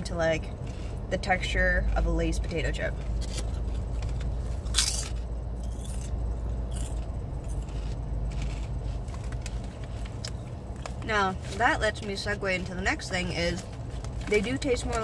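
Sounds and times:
steady low hum: 0.0s - 15.0s
potato chips crunched and chewed: 3.2s - 10.9s.

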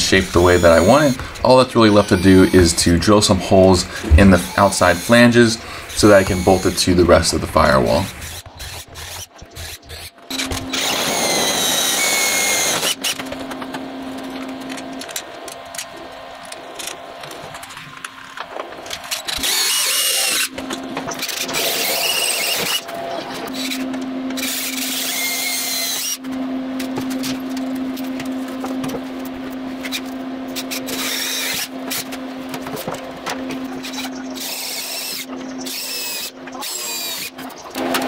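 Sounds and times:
drill bit squealing in metal: 0.3s - 3.4s, 4.2s - 7.1s, 19.3s - 20.5s, 33.9s - 37.4s
cordless drill whining: 8.2s - 13.2s.

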